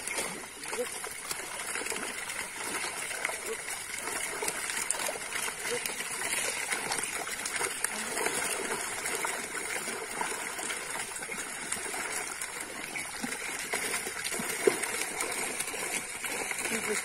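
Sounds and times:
fish thrashing and splashing in net: 0:00.0 - 0:17.0.

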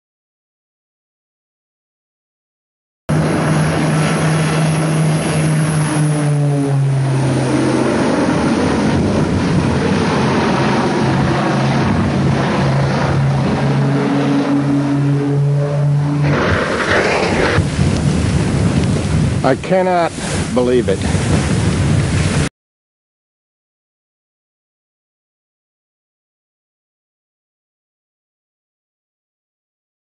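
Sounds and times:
plane crashing into ground: 0:03.1 - 0:19.4
propeller airplane droning: 0:03.1 - 0:22.5.

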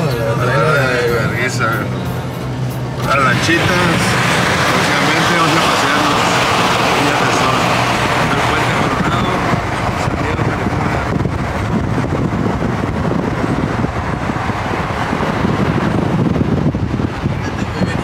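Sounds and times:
engine rumble: 0:00.0 - 0:18.0
tyres hissing on wet road: 0:02.2 - 0:11.5.

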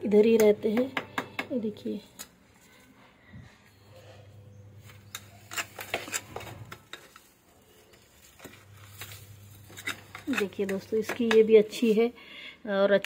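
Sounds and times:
hand hoe scraping soil: 0:08.3 - 0:11.3.

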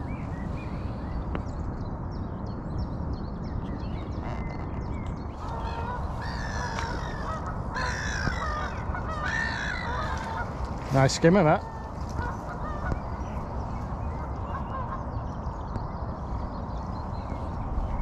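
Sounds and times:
small birds chirping: 0:00.0 - 0:18.0
geese honking: 0:05.4 - 0:13.0.

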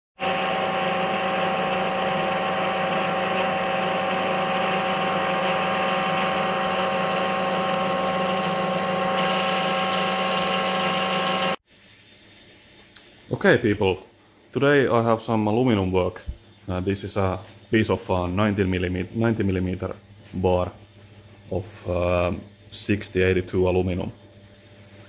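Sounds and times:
metal lathe whine: 0:00.2 - 0:11.6.

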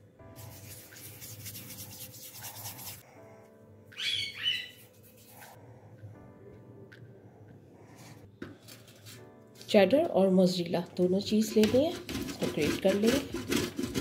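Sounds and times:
quiet background music: 0:00.0 - 0:14.0.

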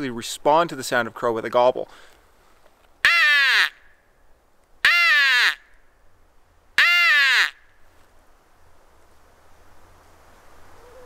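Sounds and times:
crow call caws: 0:03.0 - 0:03.8, 0:04.8 - 0:05.7, 0:06.8 - 0:07.7.

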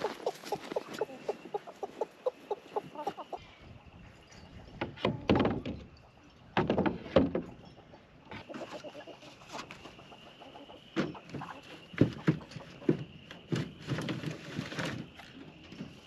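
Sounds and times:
hens clucking: 0:00.0 - 0:04.2, 0:04.9 - 0:16.0
bucket scraping on corrugated roof: 0:11.4 - 0:15.2.

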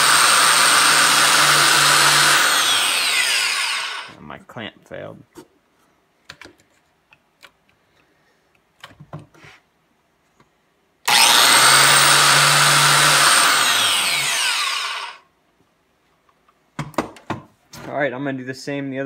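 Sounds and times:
biscuit joiner cutting wood: 0:00.0 - 0:04.2, 0:11.1 - 0:15.2.

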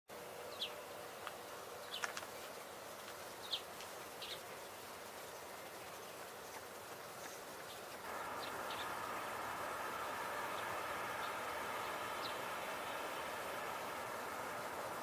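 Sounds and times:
steady background hiss: 0:00.1 - 0:15.0
downward-sliding bird calls: 0:08.1 - 0:15.0.

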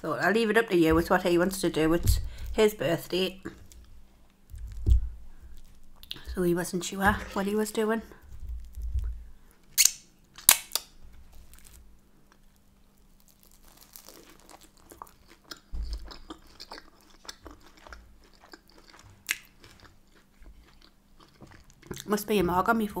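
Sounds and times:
close-up chewing: 0:11.4 - 0:22.3.

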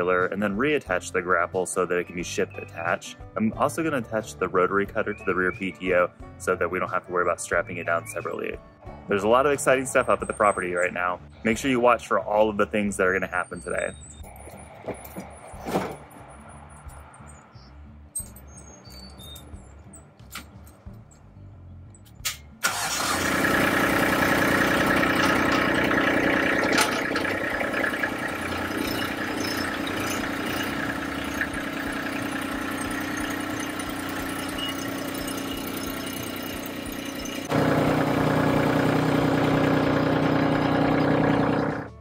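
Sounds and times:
tractor diesel engine running: 0:22.6 - 0:42.0.

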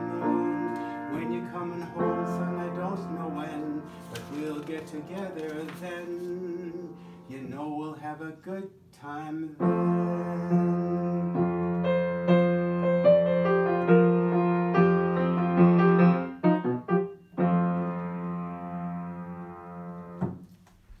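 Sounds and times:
grand piano chords: 0:00.0 - 0:08.1, 0:09.4 - 0:20.4.

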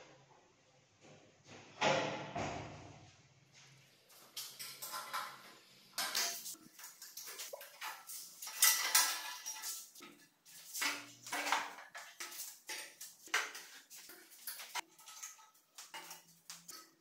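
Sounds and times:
metal tools clanking on frame: 0:06.0 - 0:10.2.

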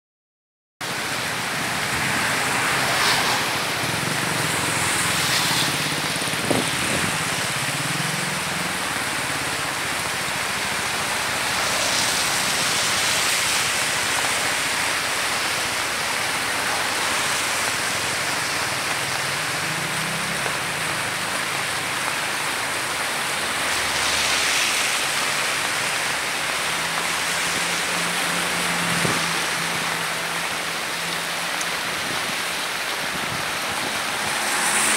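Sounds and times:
floodwater rushing: 0:00.8 - 0:34.9
heavy rain: 0:00.8 - 0:34.9
passing traffic engine hum: 0:23.4 - 0:34.9.

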